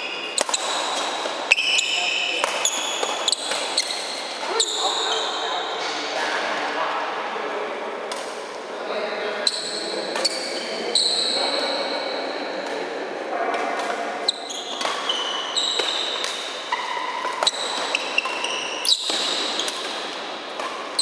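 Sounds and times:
shoes squeaking on court floor: 0.0 - 6.1, 9.4 - 12.9, 13.6 - 21.0
racket hitting shuttlecock: 0.2 - 4.9, 8.1 - 8.5, 9.5 - 11.2, 13.5 - 21.0.

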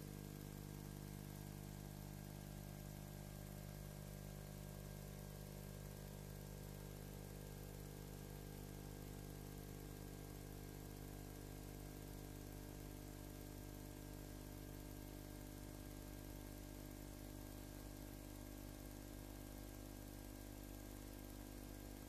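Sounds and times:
faint electrical hum: 0.0 - 1.4.

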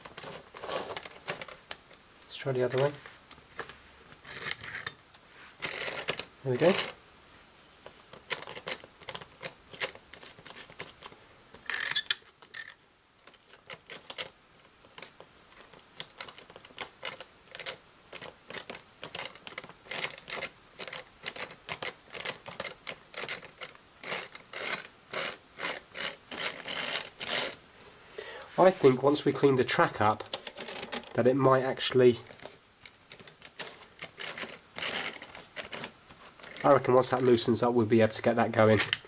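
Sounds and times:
toy locomotive clicking on track: 16.1 - 27.6.

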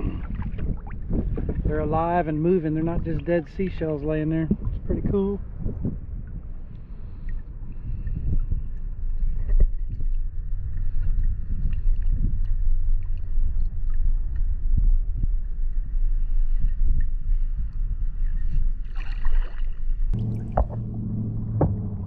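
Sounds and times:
wind on microphone: 0.0 - 22.0
paddle strokes splashing water: 18.3 - 20.9.

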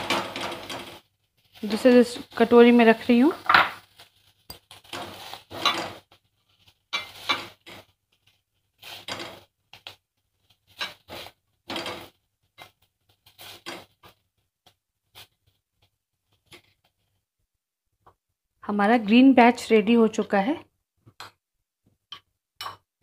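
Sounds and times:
spatula scraping pan: 0.0 - 15.5.

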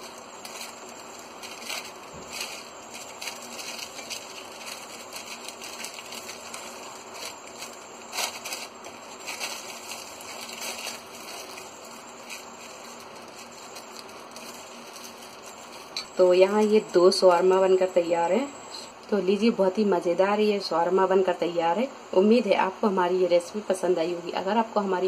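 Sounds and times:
paper rustling and crinkling: 0.0 - 18.4.

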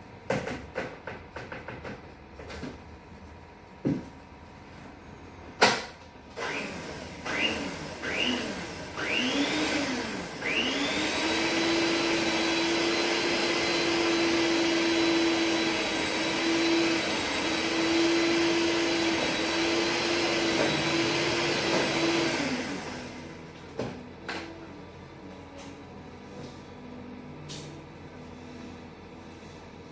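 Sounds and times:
electric hand mixer running: 6.4 - 23.5.

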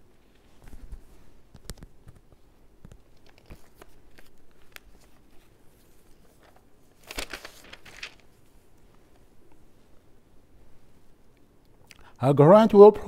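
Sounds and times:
paper crinkling: 0.3 - 9.2
paper sheets rustling: 0.3 - 9.2.

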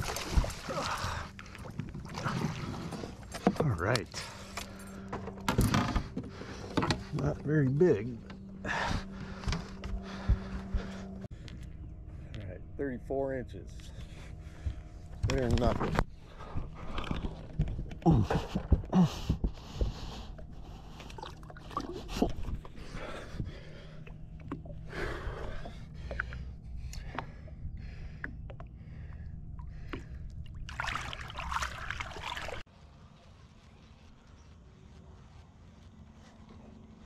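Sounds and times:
water splashing against boat: 0.0 - 4.6, 29.6 - 32.6
man grunting and breathing: 8.6 - 11.2, 18.0 - 19.5.

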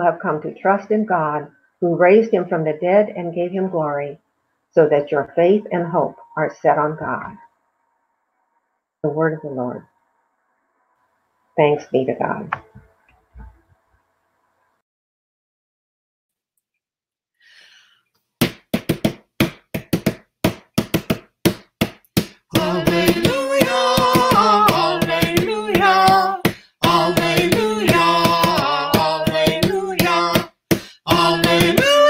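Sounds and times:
woman and man singing a hymn: 22.5 - 32.0.

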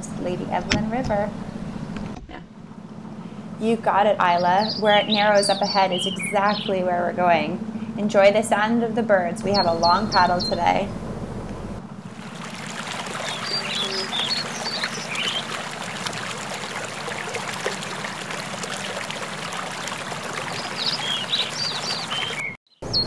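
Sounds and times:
birds chirping: 0.1 - 8.4, 9.4 - 23.0
water trickling around canoe: 12.0 - 22.6.

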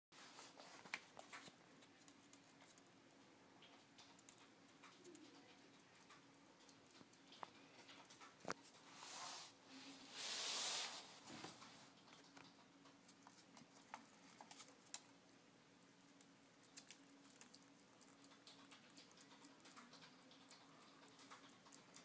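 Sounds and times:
rustling hiss: 8.8 - 12.0
ferret licking ice: 16.1 - 22.0.

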